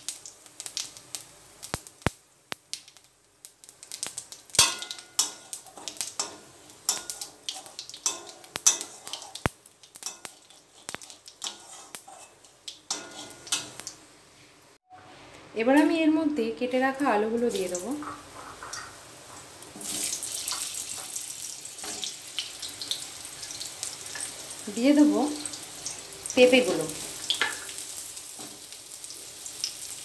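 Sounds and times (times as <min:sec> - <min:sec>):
oil sizzling: 0:00.0 - 0:14.9, 0:15.6 - 0:30.0
metal spatula scraping wok: 0:04.7 - 0:13.9.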